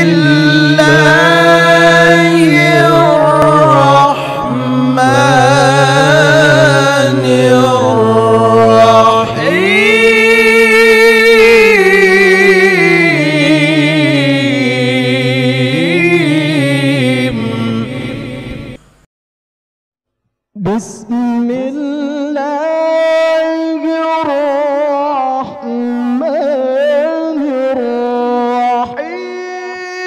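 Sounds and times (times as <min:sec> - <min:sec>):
man chanting recitation: 0:00.0 - 0:18.8, 0:20.6 - 0:30.0.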